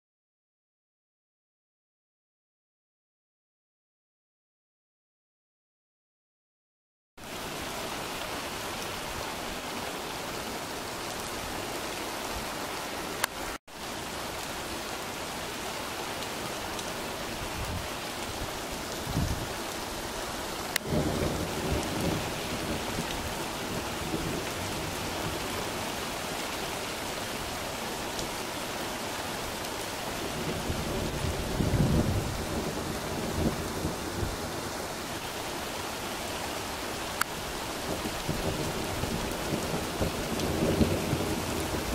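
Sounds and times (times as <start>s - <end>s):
heavy rain pouring: 7.2s - 41.9s
thunder crack and rumble: 20.8s - 25.4s, 30.3s - 34.4s.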